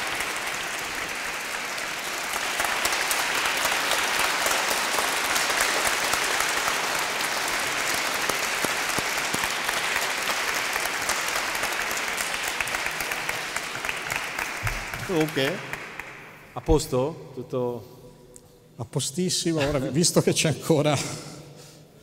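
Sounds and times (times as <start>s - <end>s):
audience applauding: 0.0s - 16.6s.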